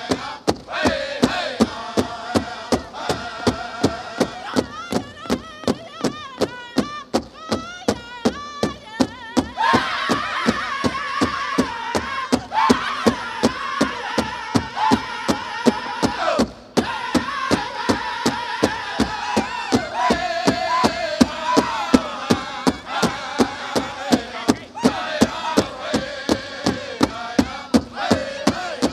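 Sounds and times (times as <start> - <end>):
men singing: 0.0 - 5.9, 9.6 - 28.9
big drum beating: 0.0 - 28.9.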